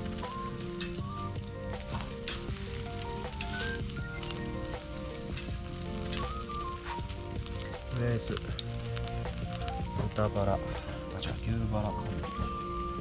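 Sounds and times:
background music: 0:00.0 - 0:13.0
fire crackling: 0:00.0 - 0:13.0
meat sizzling on a grill: 0:00.0 - 0:13.0.

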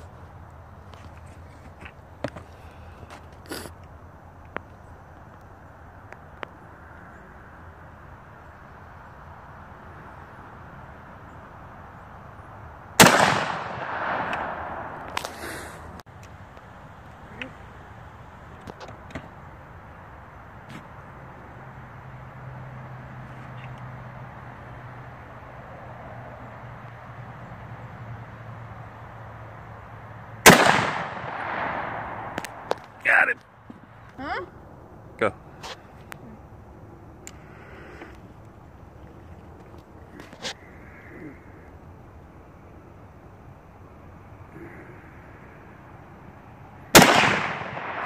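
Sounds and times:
rifle shot echoing: 0:13.0 - 0:15.4, 0:30.4 - 0:32.8, 0:46.9 - 0:48.0.

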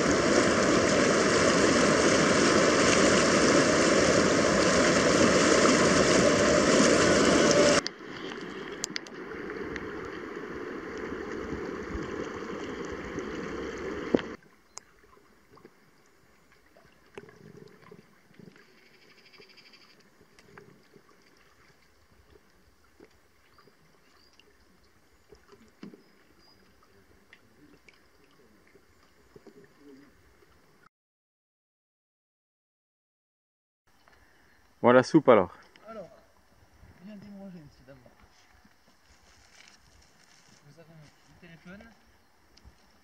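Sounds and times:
river water rushing: 0:00.0 - 0:14.4
paddle splashes: 0:00.0 - 0:30.6.

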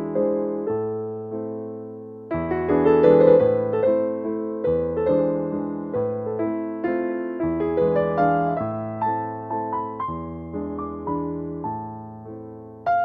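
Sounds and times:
electric piano chords: 0:00.0 - 0:13.0.

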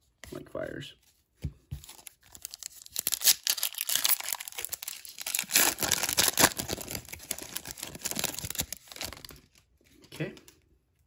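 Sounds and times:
foil wrapper crinkling and tearing: 0:01.9 - 0:09.6.

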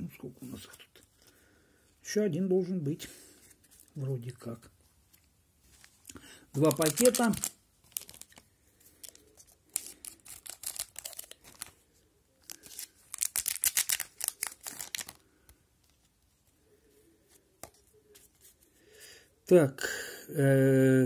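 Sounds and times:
foil wrapper crinkling and tearing: 0:06.6 - 0:11.8, 0:12.4 - 0:15.3.

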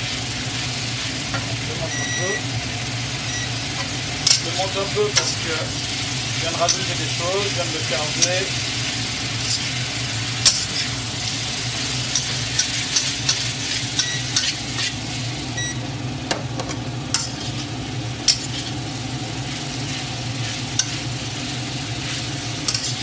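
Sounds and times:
food sizzling in a wok: 0:00.0 - 0:23.0
metal spatula scraping pan: 0:09.4 - 0:09.7, 0:17.2 - 0:17.7, 0:18.3 - 0:18.8, 0:19.5 - 0:21.0, 0:22.0 - 0:23.0.

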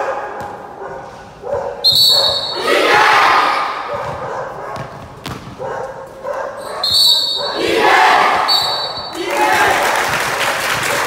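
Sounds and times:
basketball bouncing on gym floor: 0:00.3 - 0:01.2, 0:03.9 - 0:06.4
players yelling: 0:02.6 - 0:03.9, 0:07.6 - 0:10.1.

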